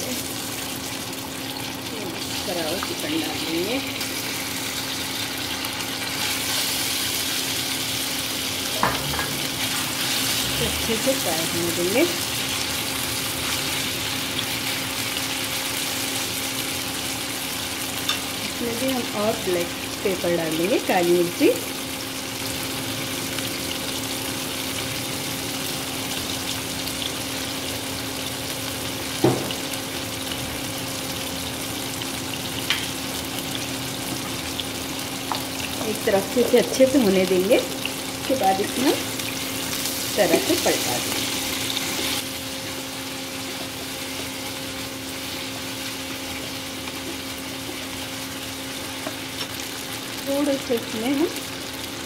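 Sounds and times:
chicken sizzling in hot oil: 0.0s - 52.0s.

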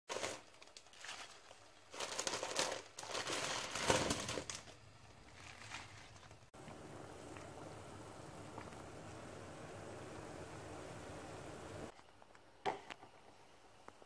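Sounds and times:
spinach leaves rustling: 0.1s - 9.4s.

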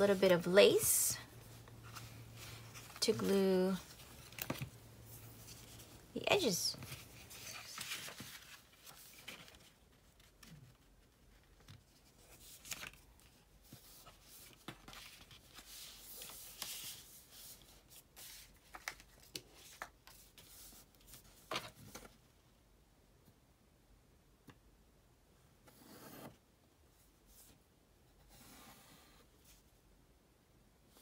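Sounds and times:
paper rustling and sliding: 1.4s - 10.4s.

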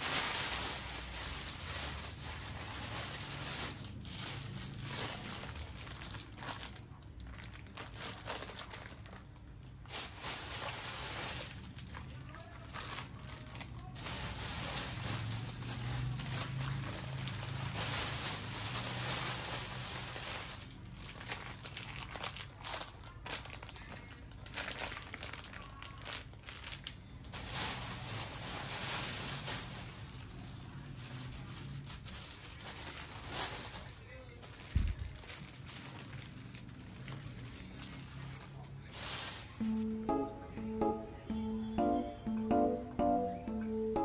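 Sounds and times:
plastic packaging crinkling: 0.0s - 30.1s, 31.4s - 39.2s.

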